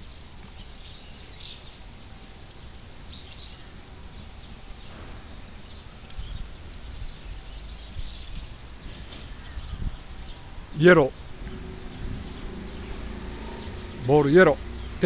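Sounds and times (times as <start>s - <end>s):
steady high hiss: 0.0s - 15.0s
low microphone rumble: 4.6s - 15.0s.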